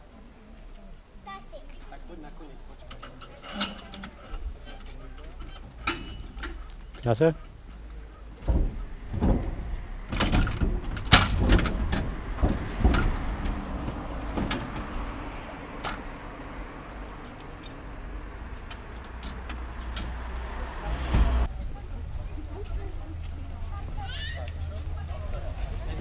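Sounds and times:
metal clanks of couplers: 2.8 - 15.1, 16.9 - 18.0, 18.6 - 20.5.

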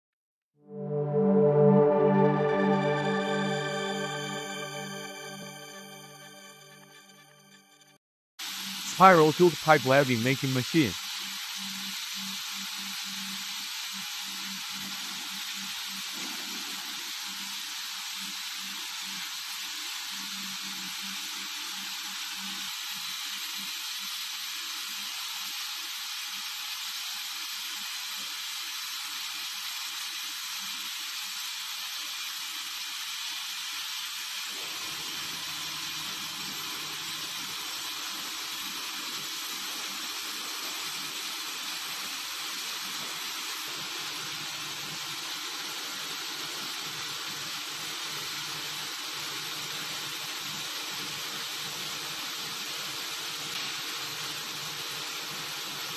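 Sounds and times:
pipe welding machine hissing: 8.4 - 55.9.

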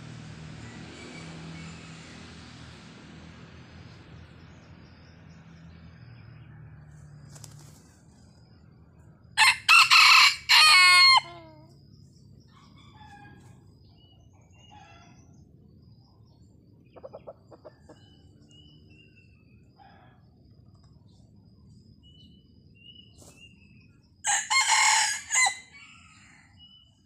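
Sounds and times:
rooster crowing: 9.4 - 11.7, 12.6 - 13.6, 24.2 - 26.8
faint small bird chirps: 11.3 - 24.0.

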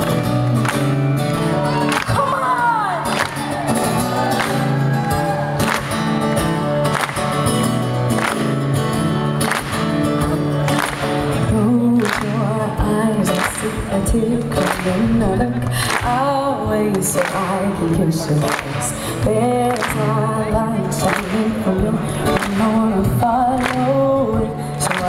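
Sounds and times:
bass guitar: 0.0 - 16.0
strummed acoustic guitar: 0.0 - 25.0.

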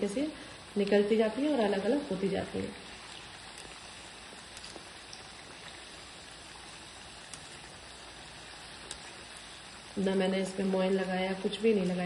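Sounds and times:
dough deep-frying in hot oil: 0.0 - 12.0
oil popping: 1.8 - 10.1.

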